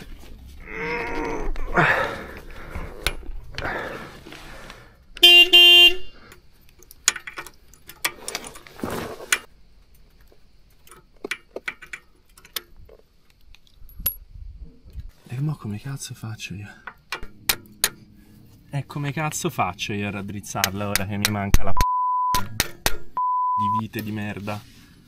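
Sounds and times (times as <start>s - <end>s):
motorcycle horn toots: 5.2s - 6.2s.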